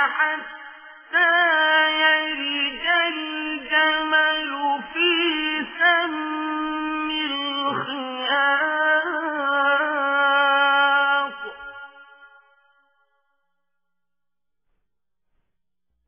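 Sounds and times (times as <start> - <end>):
solo voice chanting melodically: 0.0 - 12.1.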